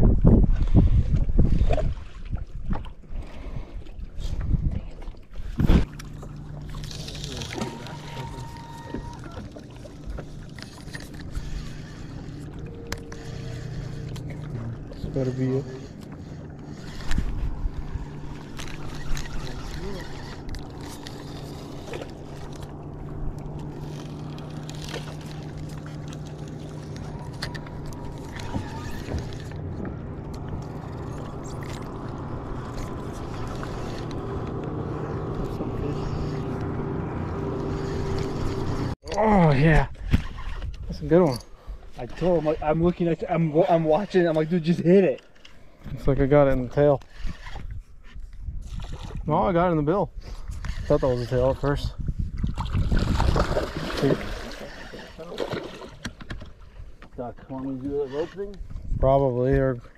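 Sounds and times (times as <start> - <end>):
water noise: 0.0 - 48.0, 48.6 - 59.9
light wind: 0.0 - 59.9
electric motor humming: 5.8 - 39.0.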